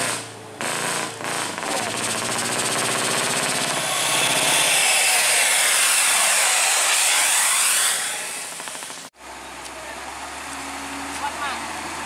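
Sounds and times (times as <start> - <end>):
diesel truck engine clattering: 0.0 - 4.6
truck passing rush with whine: 0.0 - 9.3.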